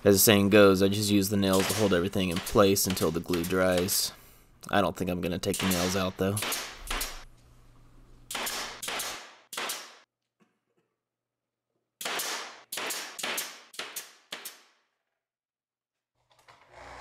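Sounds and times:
nail gun shots: 1.5 - 4.0, 5.5 - 7.2, 8.3 - 10.0, 12.0 - 14.7.

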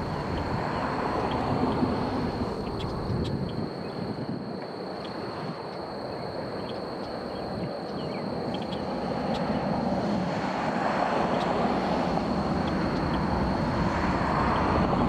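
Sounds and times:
distant jet engine rush: 0.0 - 15.0
faint chirps: 4.9 - 9.7.

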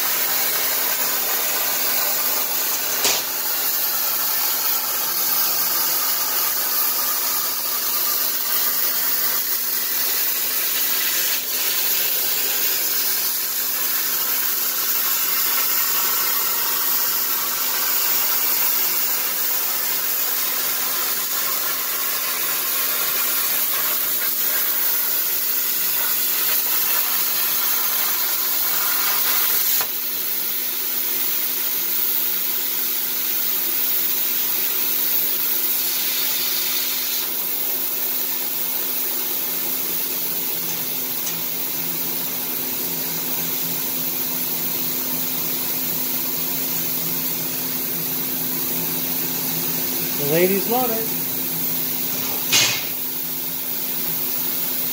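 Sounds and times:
blower humming: 0.0 - 30.0, 48.7 - 53.0
plasma cutter arc hissing: 0.0 - 54.9.

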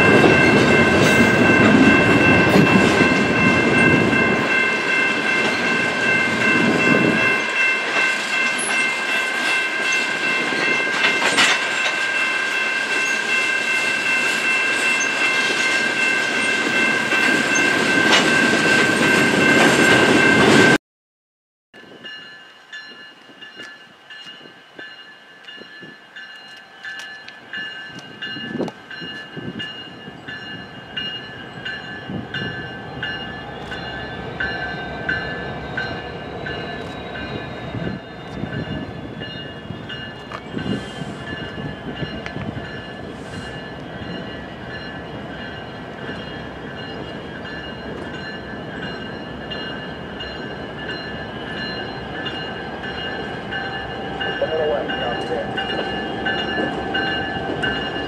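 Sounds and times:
train wheels rumbling on rails: 0.0 - 20.8, 21.8 - 58.0
clacks at rail joints: 7.9 - 12.0
high-pitched ringing: 21.8 - 58.0.

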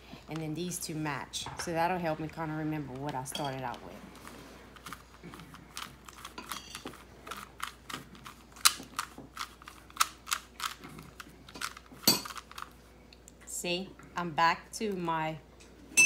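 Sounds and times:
puzzle cube clicking and clacking: 7.3 - 12.7.

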